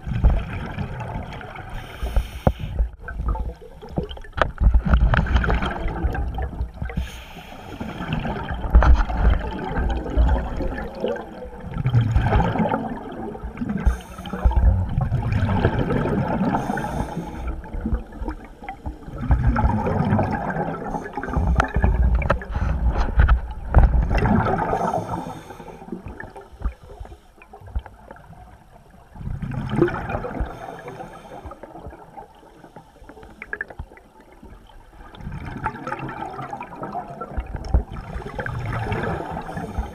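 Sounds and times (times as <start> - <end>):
air bubbling underwater: 8.0 - 25.3, 29.1 - 30.7.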